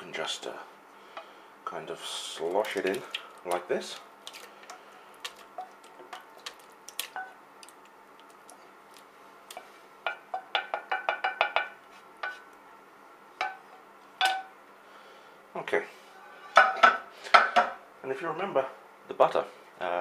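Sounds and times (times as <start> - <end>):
ringing taps on pan: 10.1 - 12.4.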